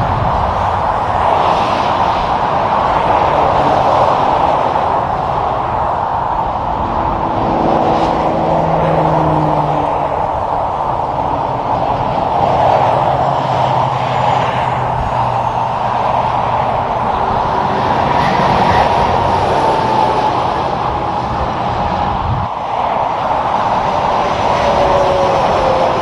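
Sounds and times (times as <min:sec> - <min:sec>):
diesel truck engines droning: 0:00.0 - 0:26.0
traffic tyre roar: 0:00.0 - 0:26.0.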